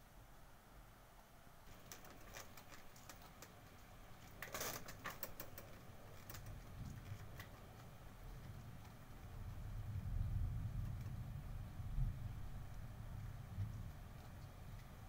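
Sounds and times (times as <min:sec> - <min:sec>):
low background rumble: 0:00.0 - 0:15.0
clicks and rustling: 0:01.7 - 0:09.0.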